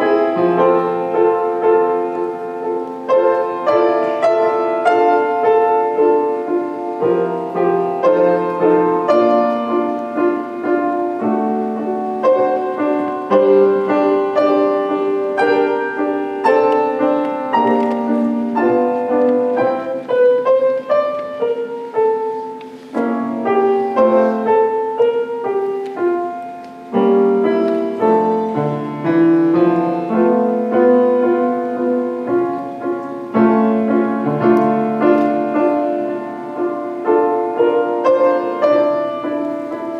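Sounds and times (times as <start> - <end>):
grand piano playing: 0.0 - 39.9.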